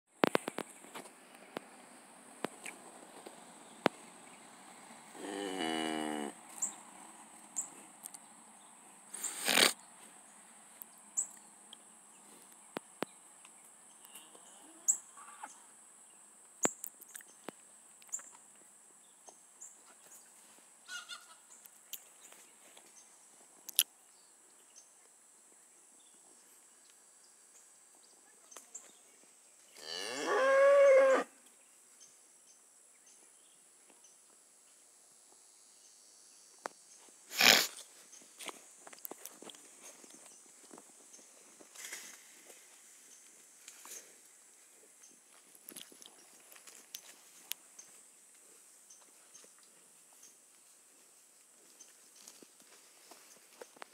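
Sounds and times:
cow mooing: 5.2 - 6.4, 29.8 - 31.3.

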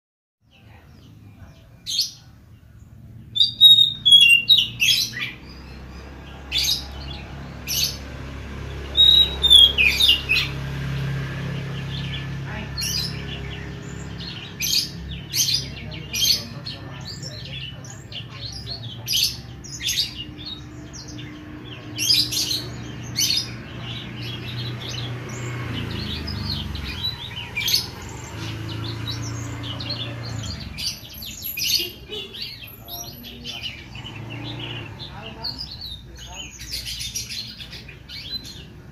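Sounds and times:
bird singing chirps and whistles: 3.4 - 5.8, 8.8 - 10.6.

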